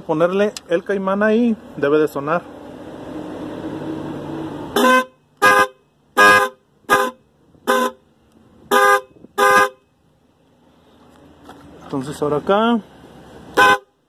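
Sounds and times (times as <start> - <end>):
car horn short blasts: 4.7 - 8.0, 8.6 - 9.9, 13.5 - 14.0.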